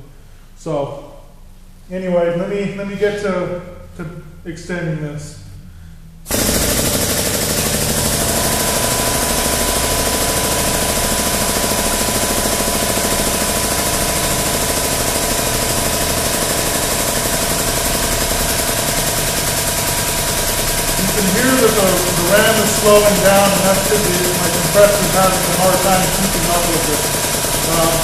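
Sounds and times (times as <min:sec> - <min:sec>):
air pump chattering with hiss: 0:06.3 - 0:28.0.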